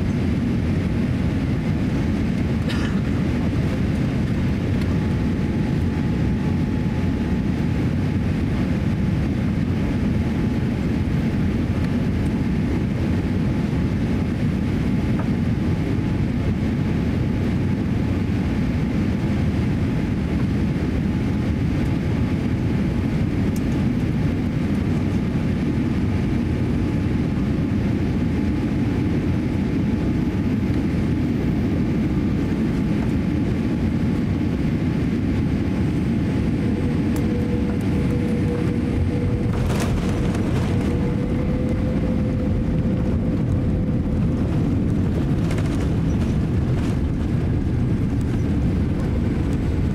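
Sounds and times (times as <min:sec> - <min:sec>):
airliner cabin engine noise: 0:00.0 - 0:49.9.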